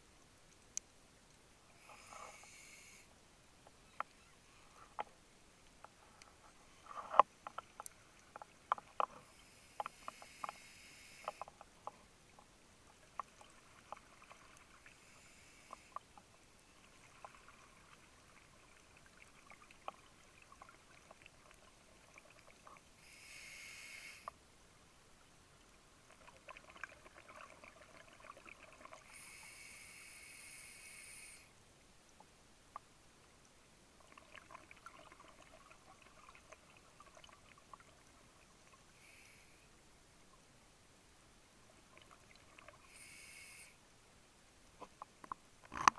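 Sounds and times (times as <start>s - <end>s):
hissing regulator breaths: 1.8s - 3.1s, 9.2s - 11.5s, 14.9s - 16.0s, 23.0s - 24.3s, 29.1s - 31.5s, 42.9s - 43.8s
sharp clicks and crackles: 4.8s - 9.2s, 44.8s - 45.9s.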